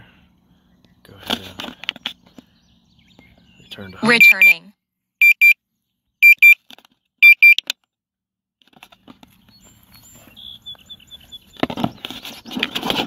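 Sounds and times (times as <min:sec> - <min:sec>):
high double beeps: 0:04.0 - 0:05.6, 0:06.2 - 0:06.6, 0:07.2 - 0:07.6.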